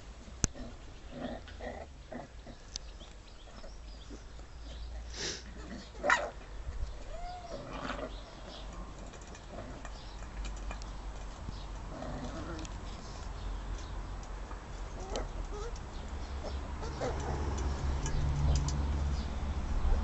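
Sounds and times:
puppies yelping and whining: 7.0s - 8.1s, 14.9s - 15.8s, 16.4s - 17.7s.

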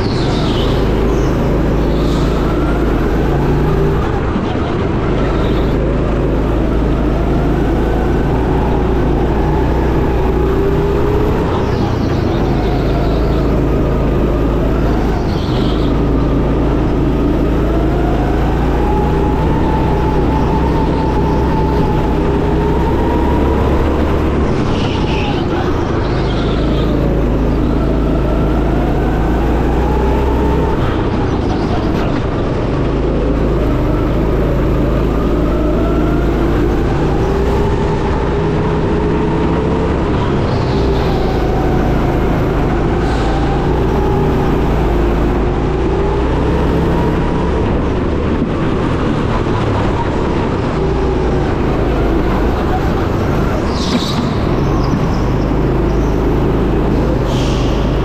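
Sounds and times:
high-pitched tyre squeals: 0.0s - 32.5s, 33.3s - 47.6s, 49.3s - 58.0s
go-kart motor revving: 0.0s - 58.0s.

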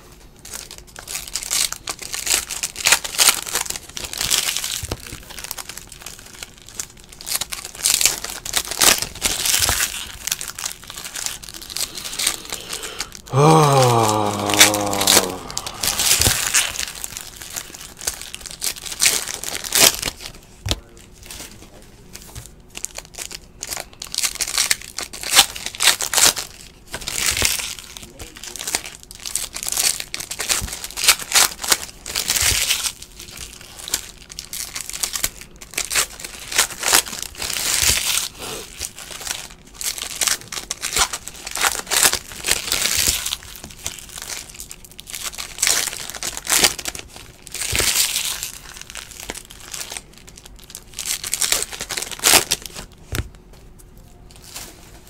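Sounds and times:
foil wrappers crinkling and tearing: 0.1s - 55.0s.

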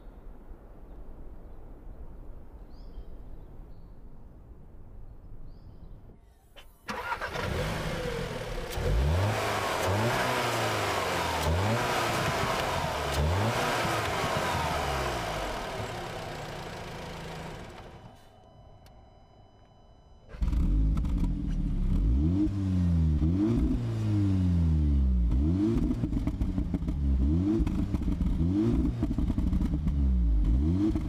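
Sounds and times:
car engine starting and revving: 6.9s - 18.2s, 20.3s - 31.0s.

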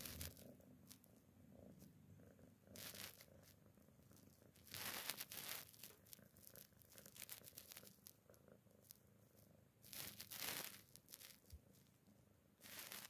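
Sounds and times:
crackling crunching near mouth: 0.0s - 1.0s, 2.8s - 3.5s, 4.6s - 8.2s, 9.9s - 11.5s, 12.6s - 13.0s
cat purring: 0.0s - 13.0s.

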